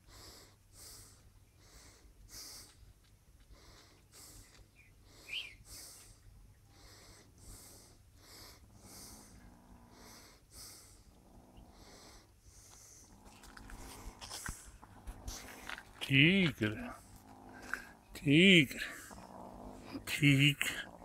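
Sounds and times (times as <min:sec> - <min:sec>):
breathing or snorting puffs: 0:06.8 - 0:11.1, 0:11.7 - 0:16.0, 0:16.8 - 0:18.1.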